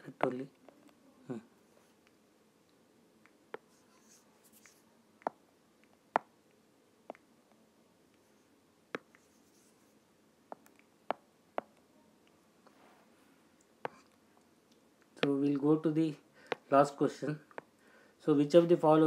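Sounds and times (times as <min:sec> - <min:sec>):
stylus tapping tablet: 0:03.5 - 0:06.4, 0:09.0 - 0:09.7, 0:10.5 - 0:11.8, 0:13.8 - 0:14.1, 0:16.4 - 0:16.7.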